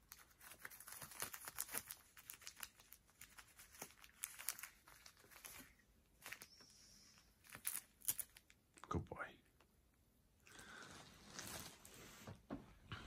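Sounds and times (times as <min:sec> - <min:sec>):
crinkling cat toy: 0:00.0 - 0:08.6.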